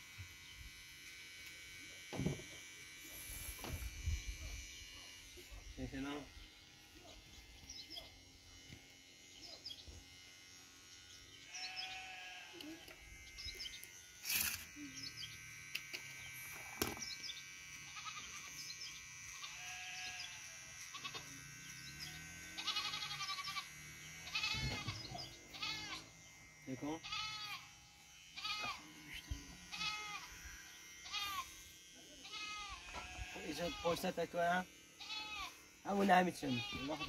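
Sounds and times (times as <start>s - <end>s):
goats bleating: 11.5s - 13.0s, 17.9s - 18.6s, 19.4s - 21.3s, 22.0s - 26.1s, 27.0s - 27.7s, 28.4s - 30.4s, 31.0s - 31.6s, 32.2s - 34.1s, 35.0s - 37.0s.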